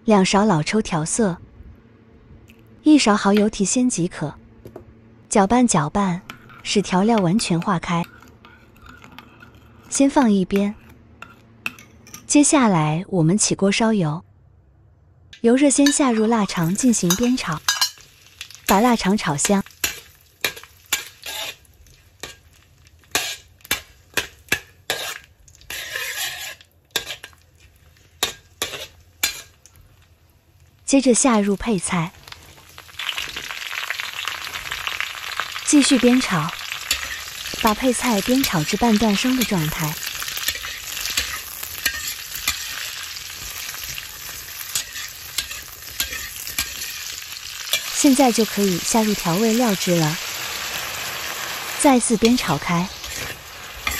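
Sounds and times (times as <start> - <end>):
metal spatula scraping a wok: 6.3 - 12.3, 15.8 - 29.6, 33.0 - 53.9
food sizzling in hot oil: 15.8 - 53.9.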